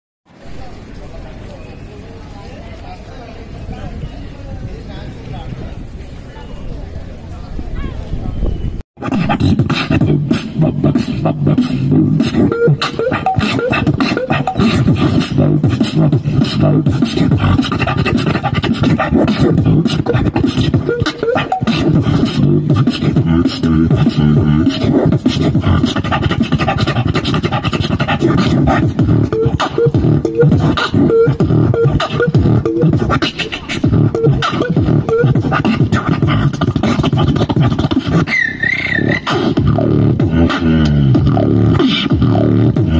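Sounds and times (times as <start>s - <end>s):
beatboxing into microphone: 9.0s - 42.9s.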